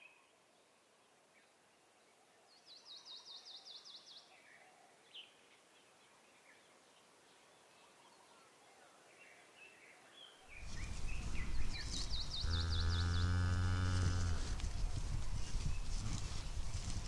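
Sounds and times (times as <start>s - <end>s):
low rumbling outdoor noise: 10.5s - 17.0s
cow mooing: 12.4s - 14.6s.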